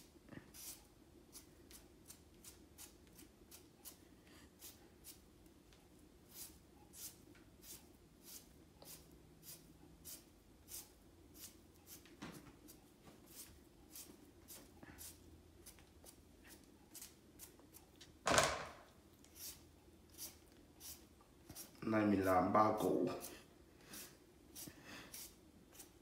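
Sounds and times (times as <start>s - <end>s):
peeler scraping potato skin: 6.3s - 12.1s, 13.3s - 18.2s, 19.2s - 21.8s, 24.0s - 26.0s
knock: 18.3s - 18.8s.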